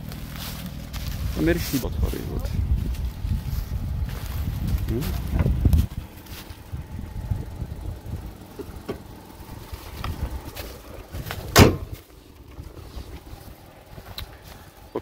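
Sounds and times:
car bonnet slamming shut: 11.5 - 12.0.

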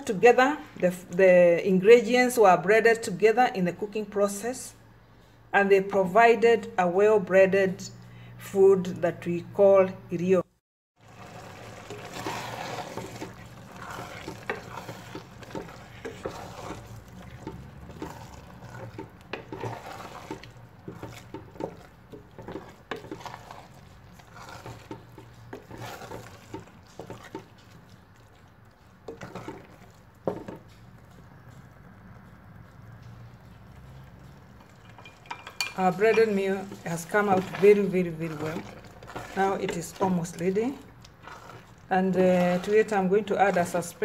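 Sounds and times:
wooden spoon scraping pot: 11.0 - 44.0.

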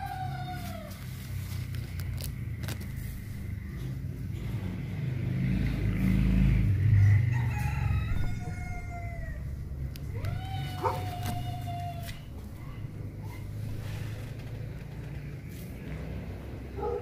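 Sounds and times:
rooster crowing: 0.0 - 1.4, 6.6 - 12.8
low rumbling noise: 0.0 - 17.0.

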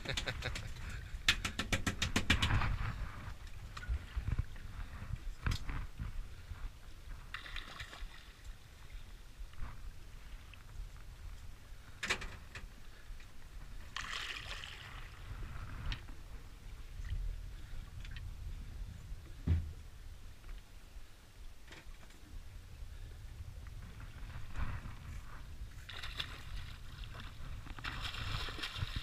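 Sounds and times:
low steady rumble: 14.6 - 29.0
dull thump: 19.4 - 19.8
water sloshing against boat: 23.8 - 29.0.

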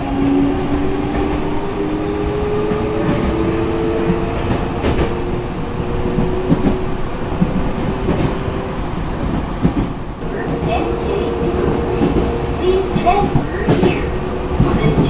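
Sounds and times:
train rumble and hum: 0.0 - 15.0
wheels clicking over rail joints: 9.2 - 15.0.

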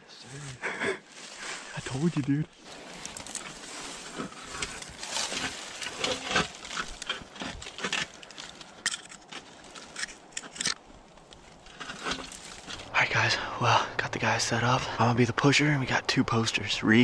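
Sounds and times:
tree stand platform scraping: 1.1 - 10.8, 11.4 - 12.9
dry leaves crunching underfoot: 1.1 - 12.9.

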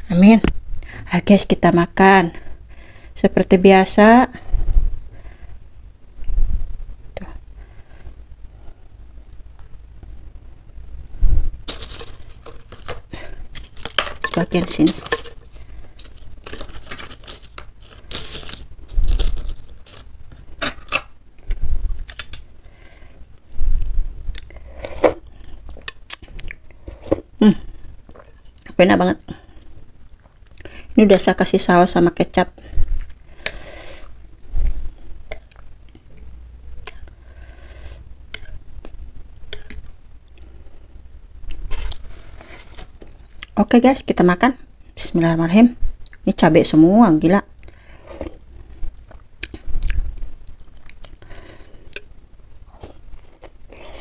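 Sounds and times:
rustling handling noises: 11.3 - 21.0.

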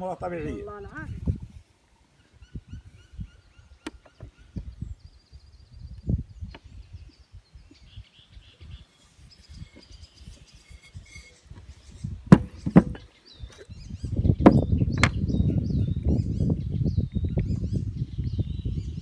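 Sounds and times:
faint birds chirping: 0.0 - 19.0
wind rumbling on microphone: 0.0 - 19.0
sharp knocks: 12.3 - 13.0.

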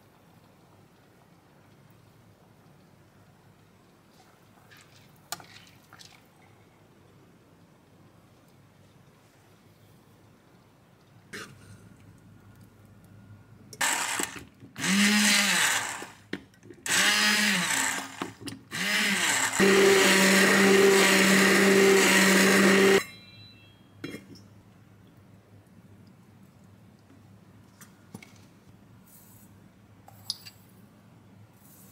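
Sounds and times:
immersion blender running: 13.8 - 16.2, 16.9 - 23.0.

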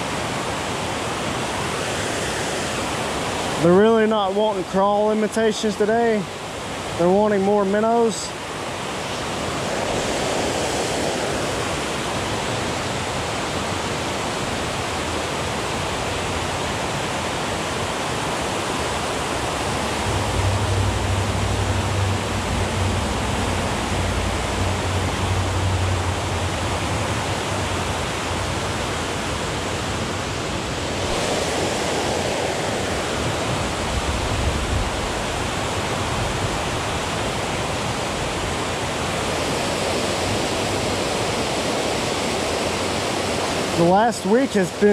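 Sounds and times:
low rumble: 20.0 - 27.9.

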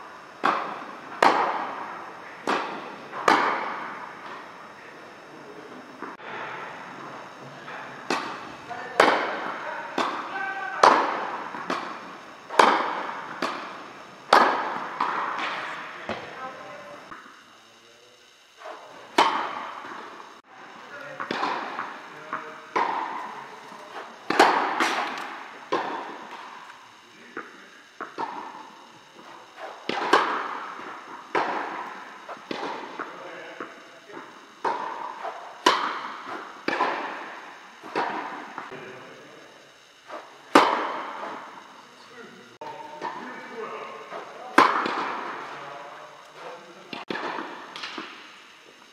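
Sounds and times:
tennis racket strikes: 10.0 - 16.2, 21.2 - 23.2, 23.8 - 26.5, 29.6 - 33.1, 34.6 - 38.8, 40.1 - 41.4, 46.9 - 48.3
tennis ball bounces: 10.8 - 16.3, 29.6 - 38.7.

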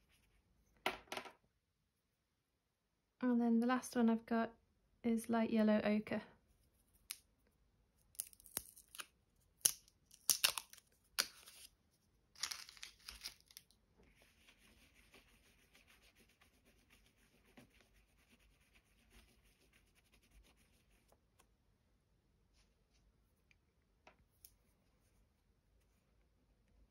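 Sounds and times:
pastel scratching on paper: 14.1 - 21.2.

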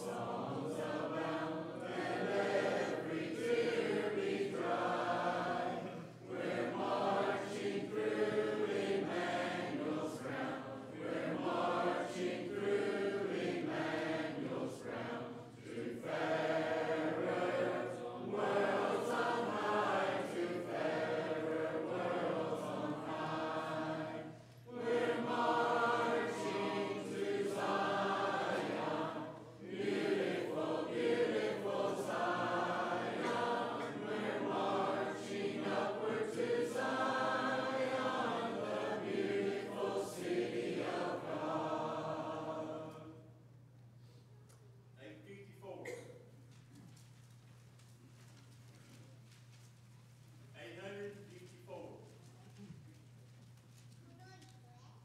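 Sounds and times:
congregation singing a hymn: 0.0 - 43.7.

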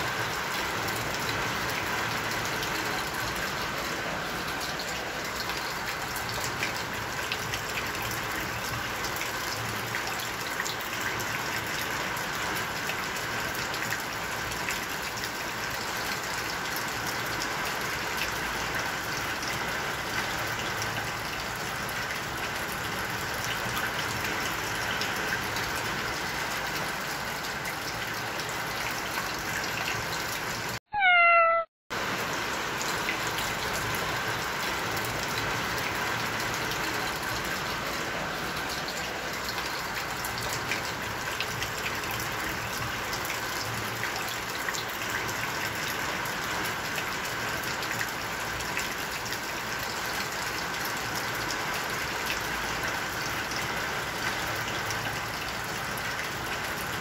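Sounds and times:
kitten meow: 30.9 - 31.7.

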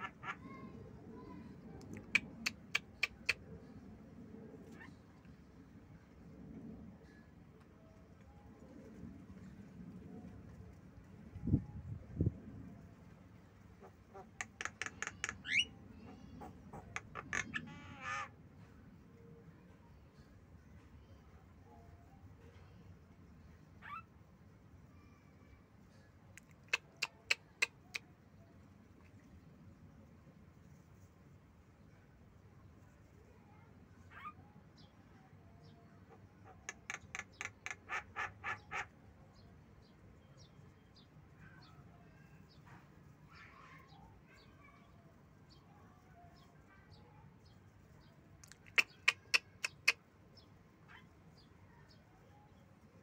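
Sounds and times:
myna bird calling: 0.0 - 1.3, 1.9 - 3.4, 13.8 - 18.3, 36.1 - 39.0, 48.4 - 50.0
myna calling rapidly: 14.1 - 15.7, 16.4 - 18.3, 48.5 - 50.0.

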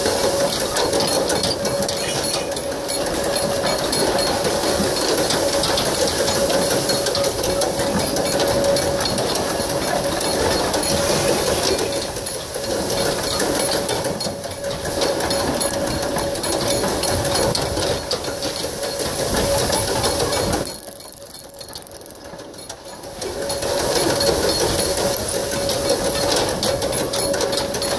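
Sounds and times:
wooden rig rattling and clattering: 0.0 - 27.9
steady ringing tone: 0.4 - 27.9.

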